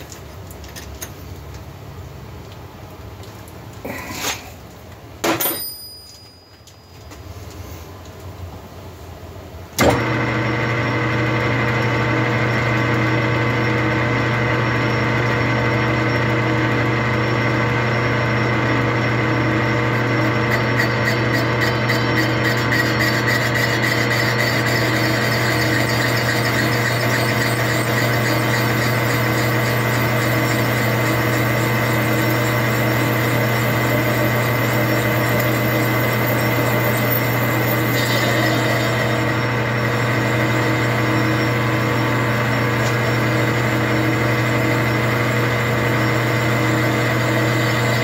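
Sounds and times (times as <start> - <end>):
lathe humming and whining: 9.8 - 48.0.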